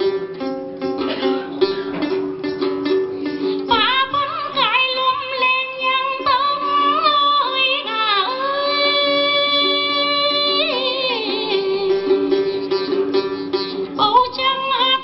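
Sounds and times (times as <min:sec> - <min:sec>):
instrumental accompaniment: 0:00.0 - 0:15.0
woman singing folk song: 0:03.3 - 0:15.0.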